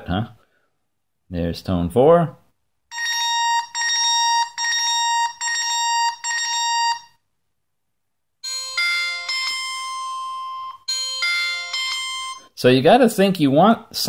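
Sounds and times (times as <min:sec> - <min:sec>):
bright electronic chime: 0:02.9 - 0:07.1, 0:08.4 - 0:12.6.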